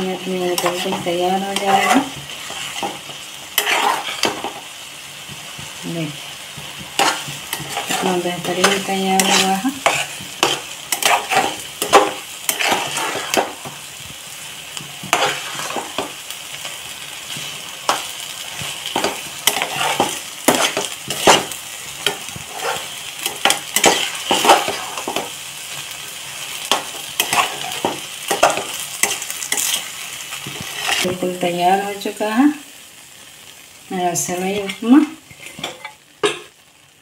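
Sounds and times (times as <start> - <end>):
food sizzling: 0.0 - 37.0
metal spatula scraping pan: 0.1 - 4.7, 6.7 - 13.9, 15.0 - 16.2, 17.2 - 31.2, 34.6 - 36.5.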